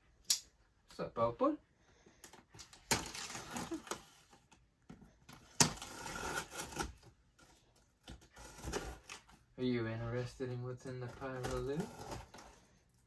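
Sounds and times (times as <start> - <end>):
box cutter slicing packing tape: 5.5 - 7.0
blade scratching cardboard: 5.5 - 7.1, 8.1 - 9.3, 11.2 - 12.6.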